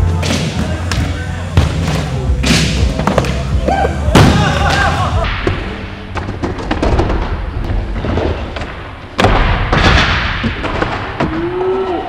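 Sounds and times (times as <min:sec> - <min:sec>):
loud skateboard impact: 0:04.1 - 0:11.6.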